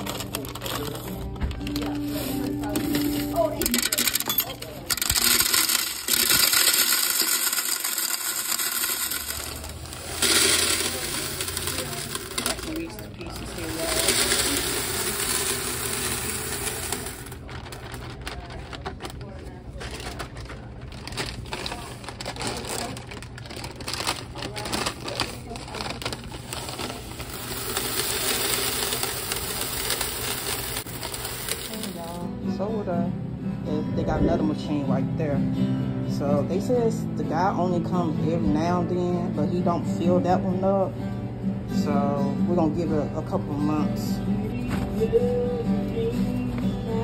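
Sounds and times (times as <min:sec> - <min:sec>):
plastic bag crinkling: 0:00.0 - 0:04.2, 0:04.8 - 0:32.2
candies rattling into plastic canister: 0:00.0 - 0:32.2.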